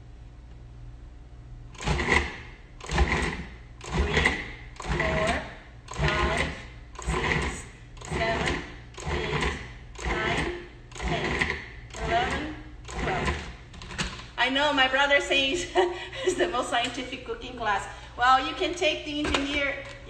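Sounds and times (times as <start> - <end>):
food processor pulsing: 1.7 - 14.1.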